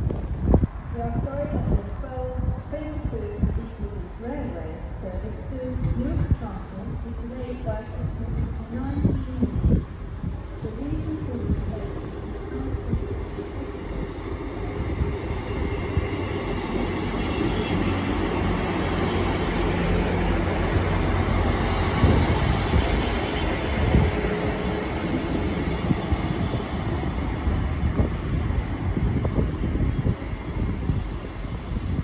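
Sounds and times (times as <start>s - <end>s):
diesel train passing: 7.9s - 32.0s
wheels rumbling on rails: 8.0s - 32.0s.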